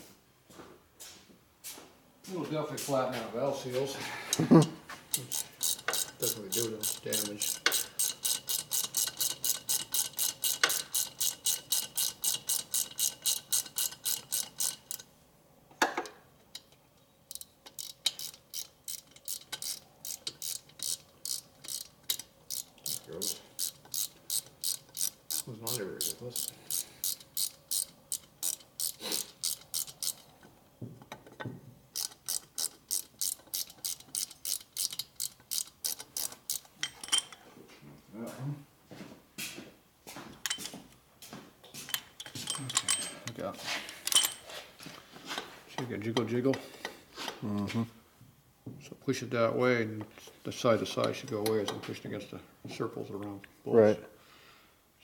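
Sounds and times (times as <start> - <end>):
socket ratchet clicking: 5.1 - 15.1, 16.0 - 37.4.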